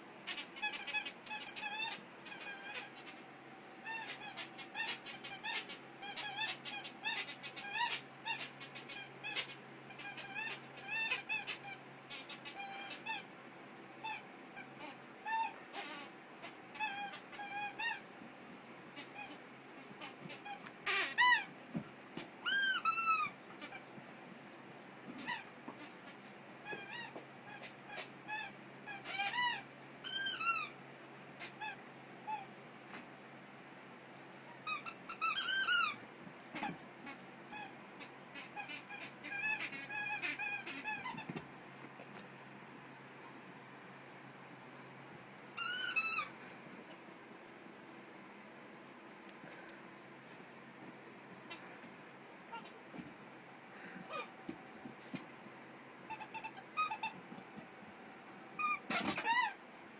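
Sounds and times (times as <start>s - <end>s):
squeaky dog toy squeaking: 0.3s - 3.1s, 3.8s - 13.3s, 14.0s - 16.1s, 16.7s - 18.0s, 20.0s - 21.5s, 22.4s - 23.8s, 25.2s - 25.5s, 26.6s - 30.8s, 31.4s - 32.5s, 34.5s - 36.0s, 37.5s - 37.8s, 38.6s - 41.4s, 45.6s - 46.3s, 54.1s - 54.3s, 56.1s - 57.2s, 58.6s - 59.6s.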